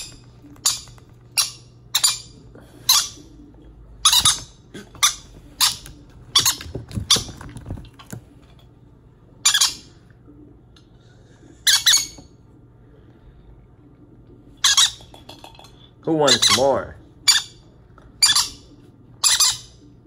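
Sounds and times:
baby parrots squawking: 0.0s - 3.4s, 4.0s - 7.5s, 9.4s - 9.9s, 11.6s - 12.2s, 14.6s - 15.0s, 16.2s - 17.6s, 18.2s - 19.8s.

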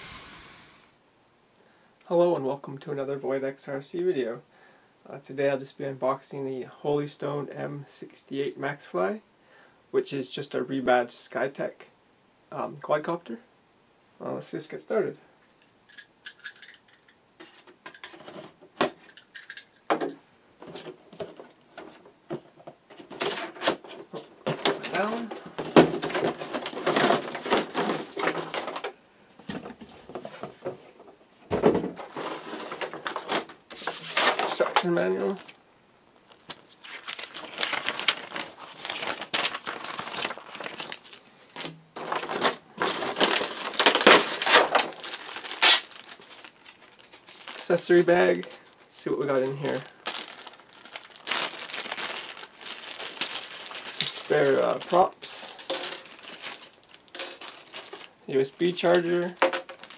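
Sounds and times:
cardboard scraping and rustling: 31.9s - 34.7s
plastic zip bag crinkling: 34.1s - 59.9s
paper pages rustling: 36.2s - 59.9s.

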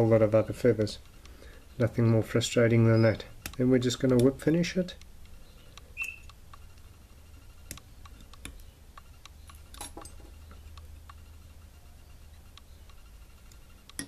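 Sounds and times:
thread ticks and clicks: 3.4s - 6.9s, 7.6s - 9.8s.

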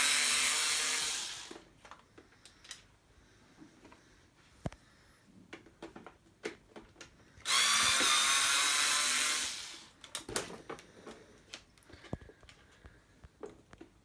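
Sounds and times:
electric screwdriver running: 0.0s - 1.6s, 7.4s - 10.0s.

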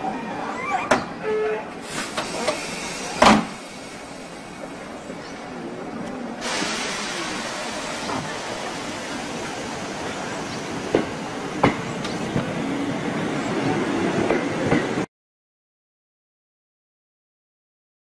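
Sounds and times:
electric train passing: 1.8s - 15.1s.

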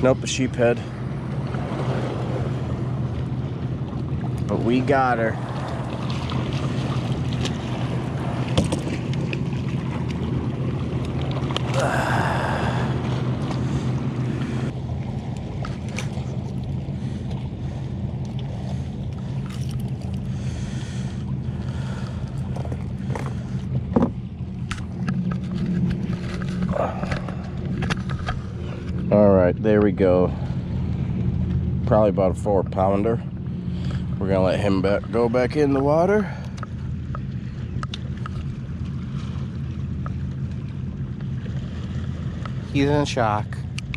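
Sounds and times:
steady low rumble: 0.0s - 43.9s
knocks and clicks against hull: 5.6s - 11.8s, 13.0s - 17.5s, 18.2s - 20.4s, 21.6s - 30.1s, 36.4s - 41.7s, 43.6s - 43.9s.

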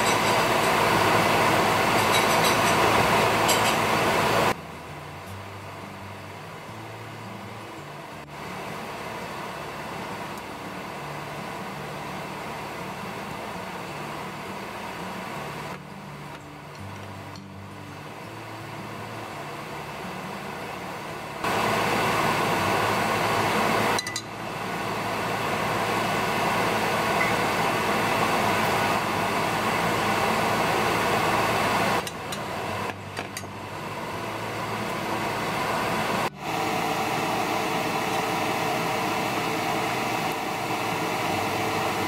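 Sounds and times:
food sizzling in oil: 0.0s - 4.5s.

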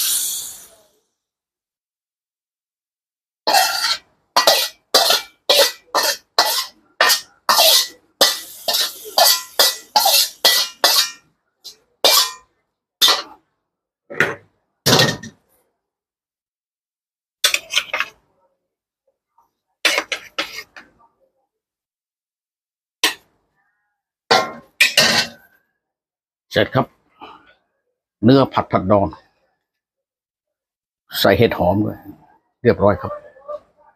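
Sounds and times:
metal spatula scraping a wok: 3.5s - 13.4s, 17.4s - 18.2s, 19.9s - 20.9s.

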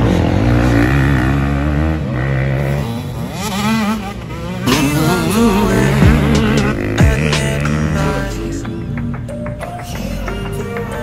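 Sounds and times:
dirt bike engine revving: 0.0s - 8.8s.

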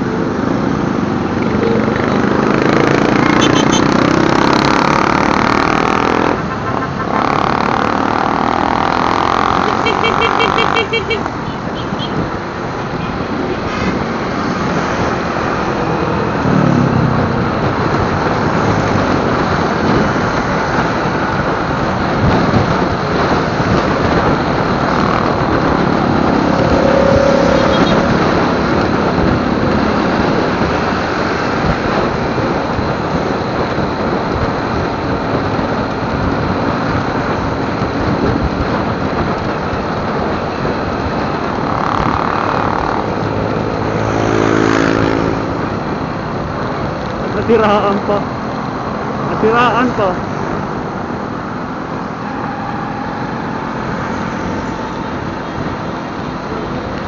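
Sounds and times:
motorcycle engine: 0.0s - 12.2s, 13.3s - 47.2s
road noise: 0.0s - 57.0s
wind rumble on microphone: 12.1s - 44.1s.

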